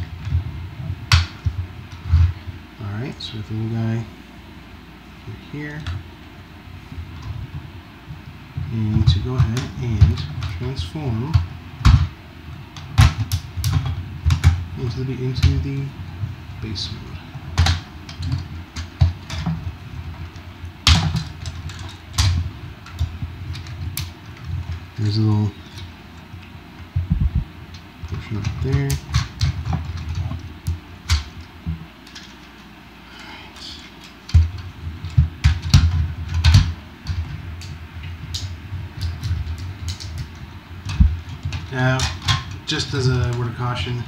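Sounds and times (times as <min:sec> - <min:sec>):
handling thumps: 0:08.6 - 0:32.6, 0:34.0 - 0:43.5.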